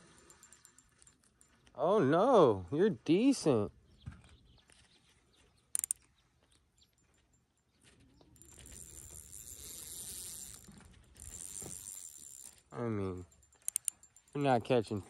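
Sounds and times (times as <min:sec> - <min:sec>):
sharp clicks: 0:05.7 - 0:06.1, 0:13.5 - 0:14.1
fishing reel buzzing: 0:05.8 - 0:06.0, 0:08.4 - 0:12.7, 0:13.4 - 0:14.3.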